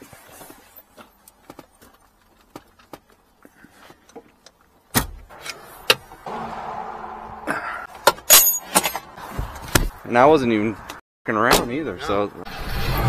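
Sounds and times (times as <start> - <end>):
steady rush: 6.2 - 8.0
loud thump: 6.2 - 8.3
metallic clanks of tools: 8.0 - 9.1.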